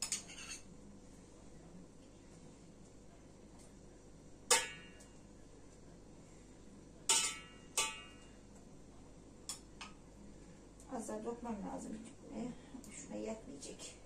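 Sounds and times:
spoon clinking against dishes: 0.0 - 0.7, 7.1 - 8.3.

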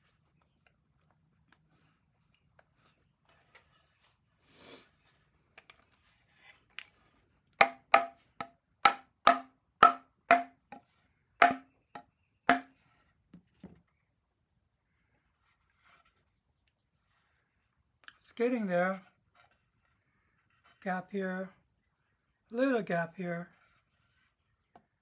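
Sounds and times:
mallet knocking on wood: 7.6 - 10.6, 11.4 - 11.7, 12.5 - 12.7.

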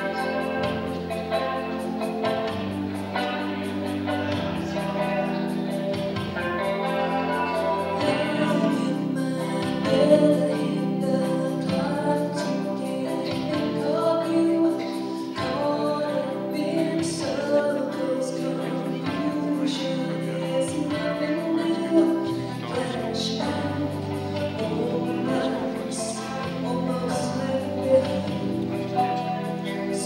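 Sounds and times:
group singing through loudspeakers: 0.0 - 30.0.

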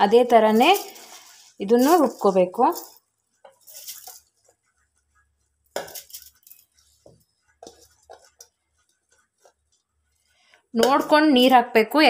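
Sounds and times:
metal clinks and knocks: 5.7 - 8.5.

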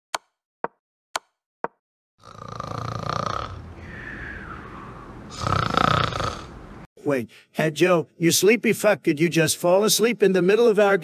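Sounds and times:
man snoring loudly: 2.2 - 3.8, 5.3 - 6.6.

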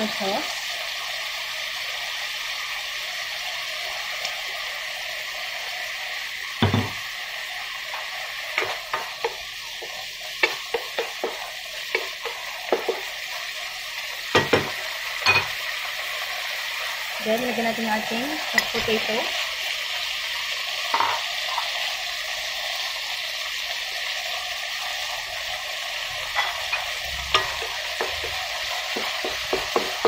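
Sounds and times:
pork sizzling in a wok: 0.0 - 30.0
knock: 6.6 - 7.0.

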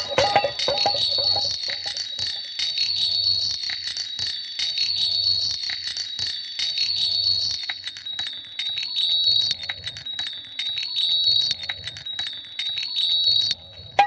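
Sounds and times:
chime-like ringing tones: 0.0 - 2.4
crackle of clicks: 7.5 - 13.6.

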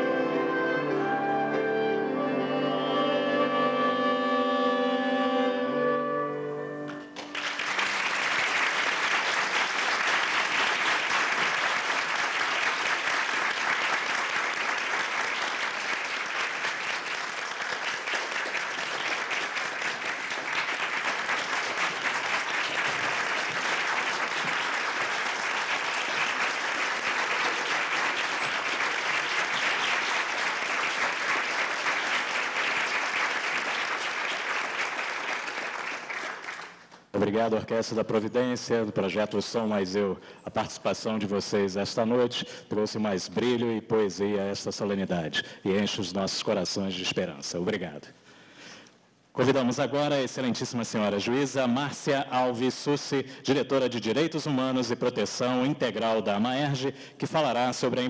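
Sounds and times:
audience applauding: 6.9 - 37.1.

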